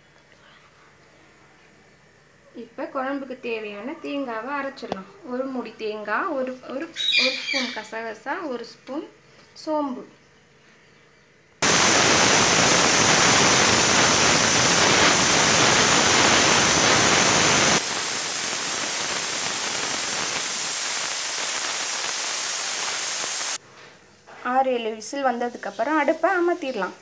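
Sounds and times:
pressure cooker steam hissing: 11.6s - 23.6s.

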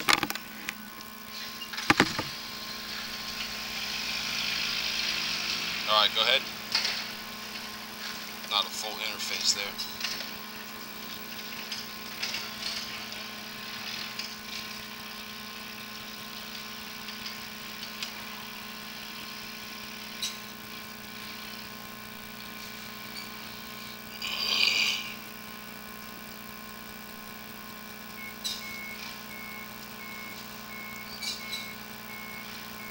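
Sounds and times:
machine hum with held tones: 0.0s - 32.9s
rasping scrape: 23.8s - 25.2s.

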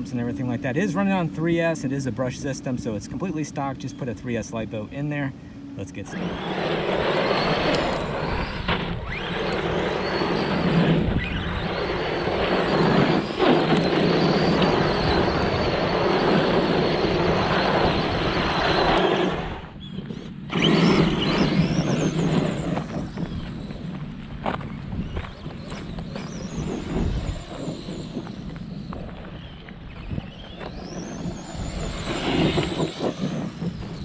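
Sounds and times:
electric motor whining: 0.0s - 34.0s
tyres crunching on gravel: 20.7s - 33.1s.

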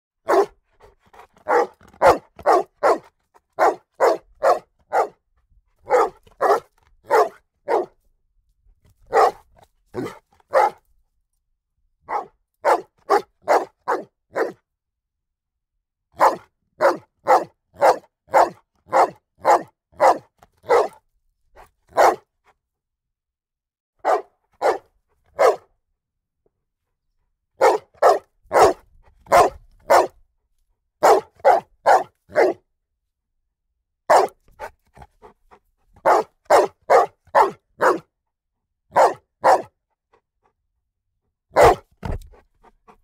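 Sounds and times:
dog barking loudly: 0.2s - 0.6s, 1.2s - 5.2s, 5.8s - 8.0s, 9.1s - 9.4s, 10.0s - 10.8s, 12.1s - 14.6s, 16.2s - 21.0s, 21.9s - 22.2s, 24.0s - 25.7s, 27.6s - 30.2s, 31.0s - 32.6s, 34.1s - 34.7s, 36.0s - 38.1s, 38.9s - 39.8s, 41.5s - 42.2s.

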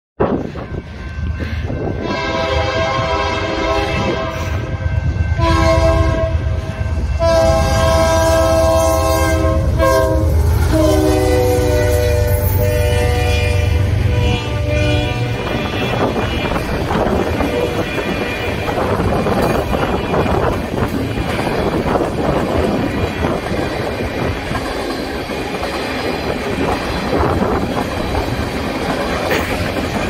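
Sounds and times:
locomotive air horn blasts: 1.9s - 20.6s.

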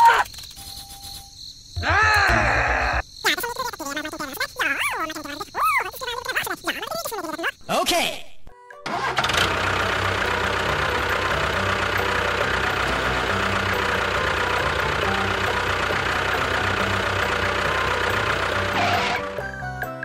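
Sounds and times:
tractor engine starting and running: 8.8s - 20.0s.

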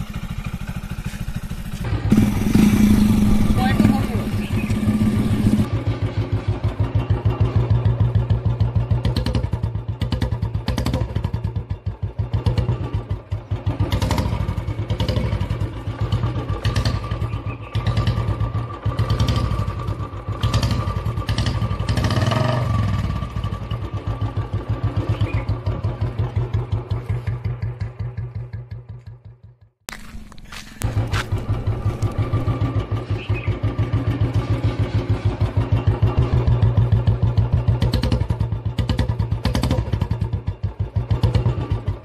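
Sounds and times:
motorcycle exhaust thumping: 0.0s - 42.0s.

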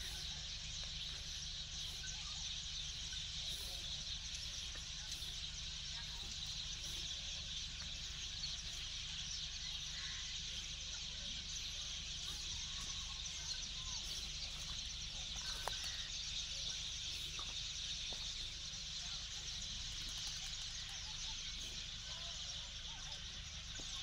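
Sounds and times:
faint bird chirps: 0.0s - 24.0s.

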